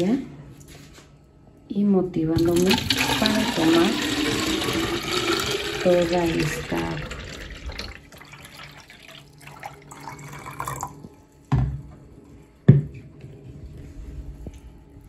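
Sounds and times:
water pouring into plastic bottle: 0:02.4 - 0:11.0.

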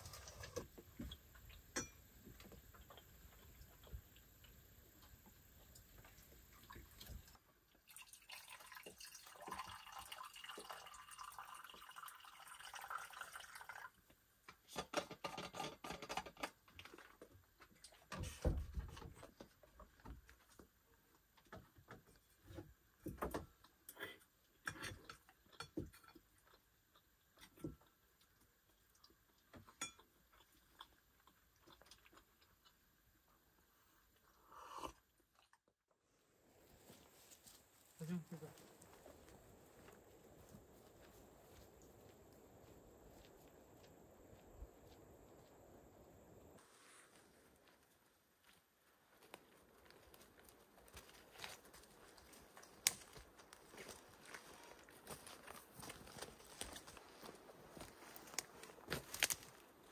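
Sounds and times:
clinks and knocks: 0:01.7 - 0:02.5, 0:14.7 - 0:17.0
liquid pouring into metal mug: 0:07.9 - 0:14.0.

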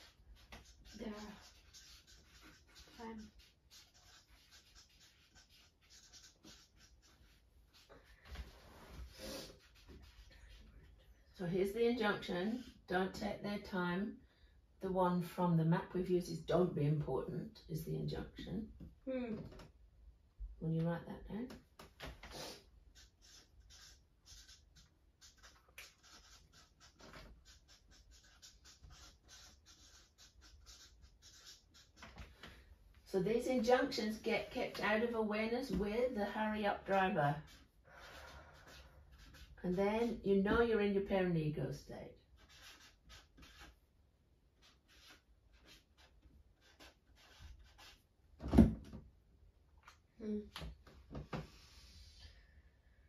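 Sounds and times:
marker scratching on paper: 0:00.0 - 0:13.2, 0:22.3 - 0:32.4, 0:33.3 - 0:41.0, 0:42.3 - 0:43.9, 0:44.5 - 0:48.1.

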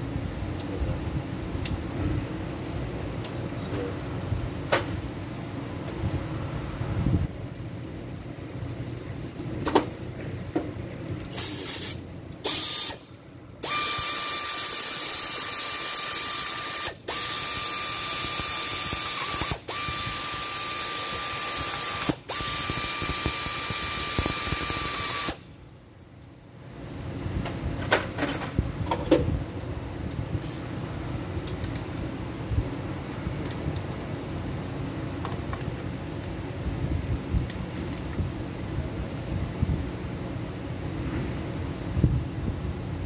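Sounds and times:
air ratchet hissing and whining: 0:11.3 - 0:25.5.

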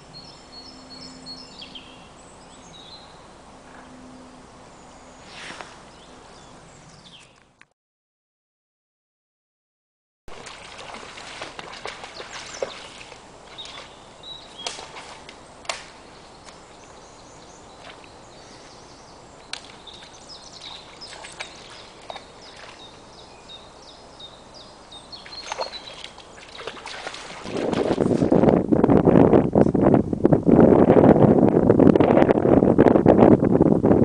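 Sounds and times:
branches snapping: 0:14.5 - 0:16.6, 0:19.5 - 0:20.1
wind buffeting microphone: 0:24.9 - 0:34.0.

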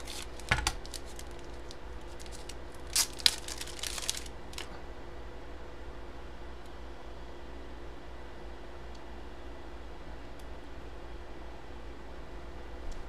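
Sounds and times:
packaging crinkling and rustling: 0:00.0 - 0:04.8
steady low hum: 0:00.0 - 0:13.0.

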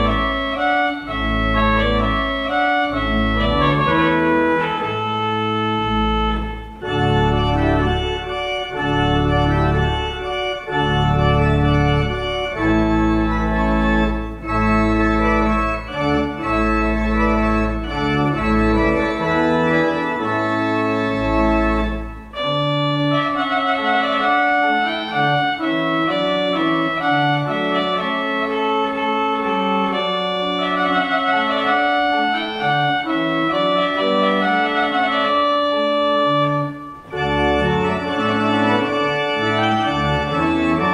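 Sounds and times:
organ music: 0:00.0 - 0:40.9.

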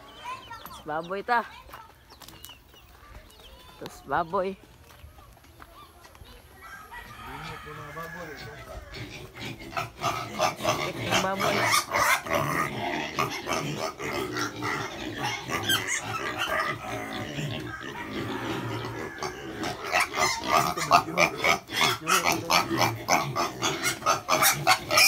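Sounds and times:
piglets grunting and squealing: 0:06.8 - 0:25.0.

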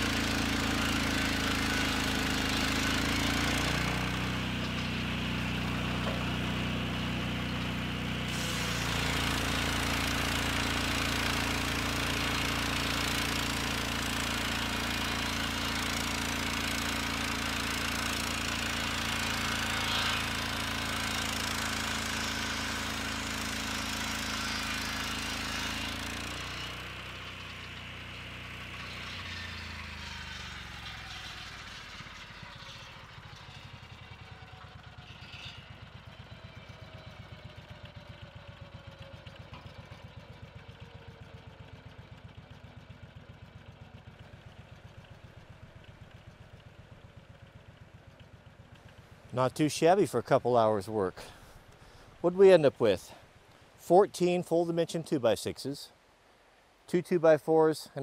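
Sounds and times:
sawmill engine: 0:00.0 - 0:58.0
circular saw ripping log: 0:08.1 - 0:35.9.

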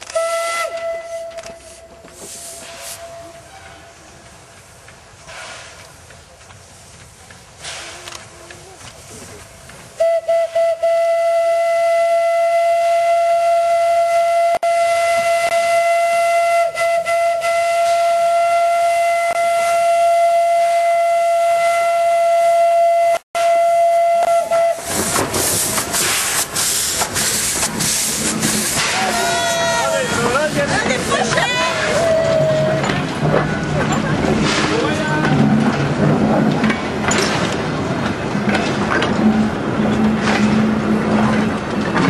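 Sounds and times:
train passing close by: 0:00.0 - 0:42.0
steam locomotive whistle: 0:00.1 - 0:03.9, 0:10.0 - 0:25.2.

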